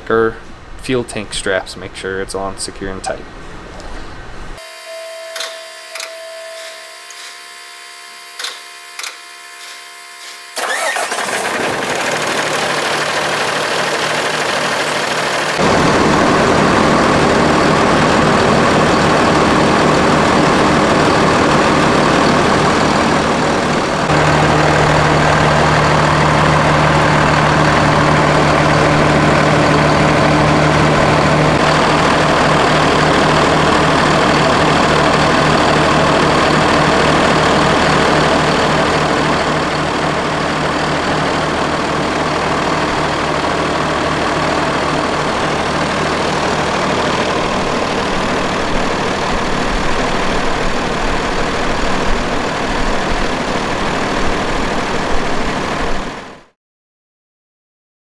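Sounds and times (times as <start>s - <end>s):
diesel engine starting and idling: 10.6s - 56.6s.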